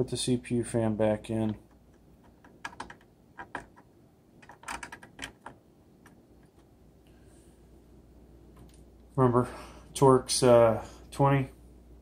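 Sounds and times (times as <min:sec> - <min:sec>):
faint clicks and light taps: 0:08.5 - 0:09.1.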